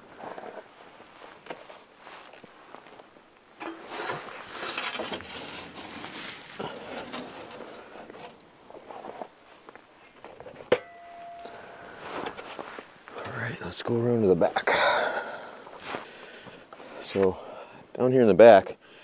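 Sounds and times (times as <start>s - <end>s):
shovel scraping metal floor: 3.6s - 8.4s.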